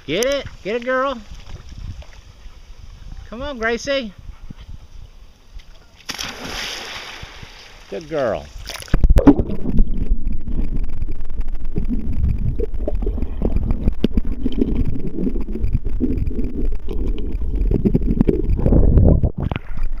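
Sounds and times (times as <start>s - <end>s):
muffled underwater rumble: 8.9s - 20.0s.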